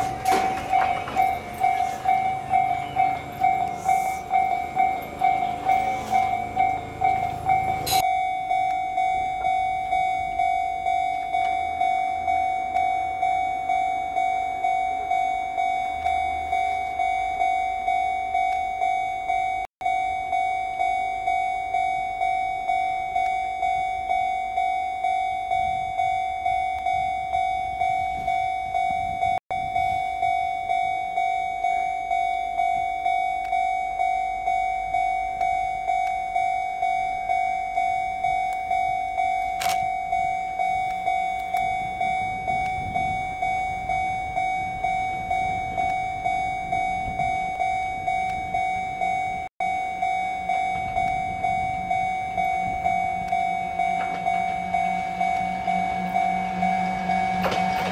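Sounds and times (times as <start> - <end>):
train rumble: 0.0 - 8.0, 39.4 - 49.5, 50.4 - 57.9
level crossing alarm bell: 0.0 - 57.9.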